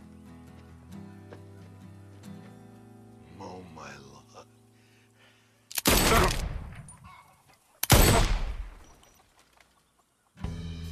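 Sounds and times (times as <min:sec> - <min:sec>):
gunshots with echoing tail: 0:05.8 - 0:06.9, 0:07.8 - 0:08.9.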